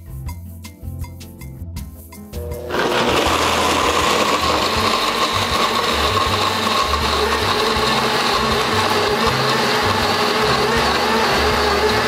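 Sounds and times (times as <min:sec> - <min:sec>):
blender crushing ice: 0:02.5 - 0:12.0.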